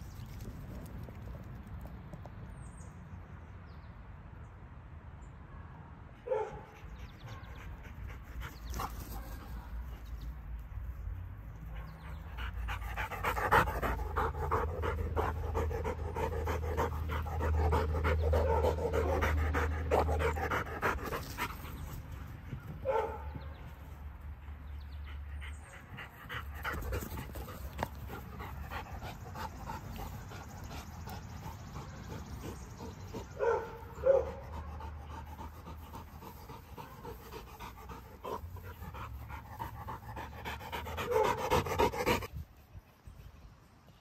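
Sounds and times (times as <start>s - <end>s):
dog panting hard: 12.0s - 22.2s, 24.8s - 42.4s.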